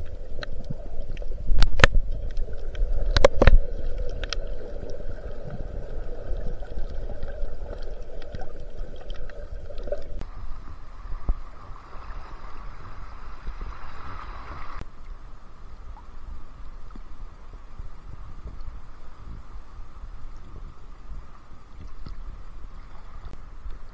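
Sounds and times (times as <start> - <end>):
muffled water sloshing and gurgling: 0.0 - 15.0.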